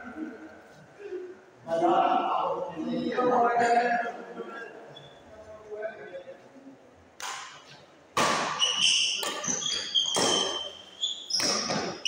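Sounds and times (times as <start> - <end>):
racket hitting shuttlecock: 8.2 - 10.7, 11.3 - 12.0
shoes squeaking on court floor: 8.2 - 12.0.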